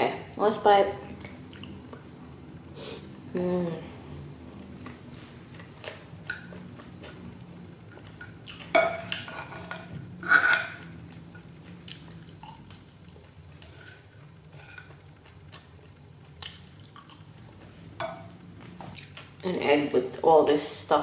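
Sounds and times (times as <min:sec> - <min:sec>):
chopsticks scraping ceramic plate: 0:08.8 - 0:10.9.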